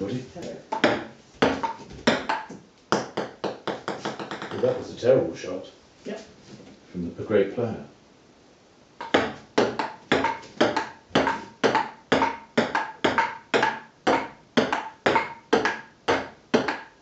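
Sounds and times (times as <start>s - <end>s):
table tennis ball clicks: 9.0s - 17.0s.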